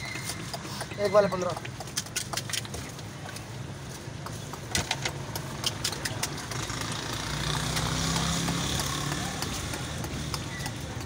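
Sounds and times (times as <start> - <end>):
sharp clicks and taps: 0.0 - 11.0
traffic engine hum: 0.0 - 11.0.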